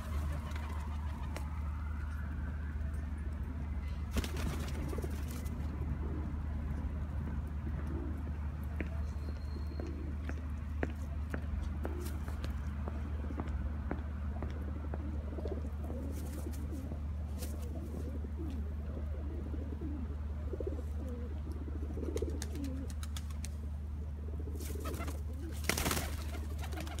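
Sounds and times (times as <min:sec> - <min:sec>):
flurry of wingbeats: 0:00.0 - 0:01.5, 0:04.1 - 0:05.6, 0:22.0 - 0:23.6, 0:24.6 - 0:27.0
pigeons cooing: 0:04.5 - 0:07.0, 0:14.5 - 0:23.2, 0:24.0 - 0:27.0.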